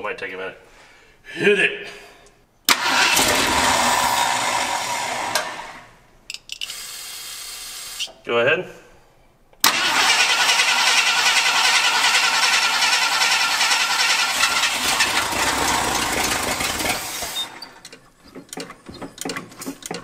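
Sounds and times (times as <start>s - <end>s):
engine cranking on starter: 2.7s - 6.0s, 9.6s - 20.0s.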